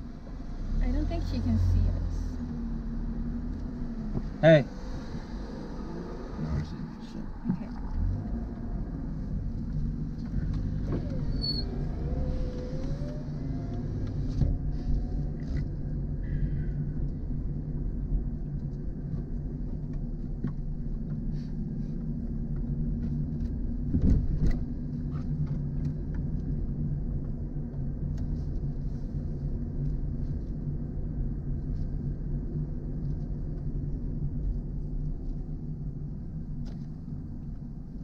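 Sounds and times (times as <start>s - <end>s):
car engine and road noise: 0.0s - 38.0s
thump: 23.9s - 24.6s.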